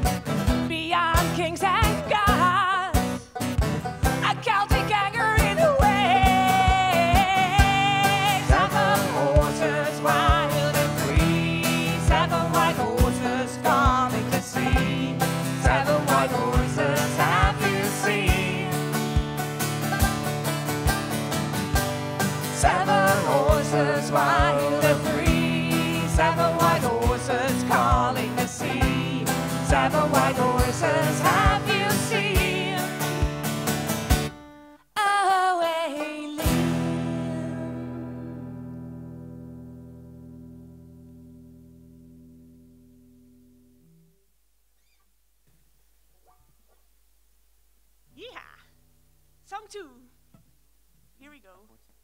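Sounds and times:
banjo: 0:00.0 - 0:34.4, 0:35.7 - 0:38.8
strummed acoustic guitar: 0:00.0 - 0:34.8, 0:35.9 - 0:44.2
woman and man singing: 0:00.6 - 0:03.2, 0:04.2 - 0:19.0, 0:22.4 - 0:33.1, 0:35.0 - 0:38.4.

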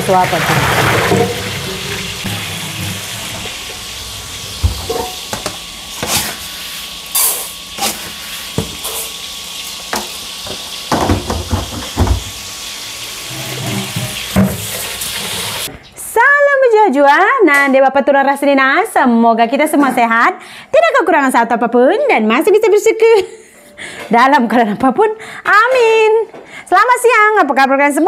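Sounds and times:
pot knocking and clanking: 0:04.6 - 0:05.6, 0:09.9 - 0:12.3
tap running into a pot: 0:09.9 - 0:12.3.

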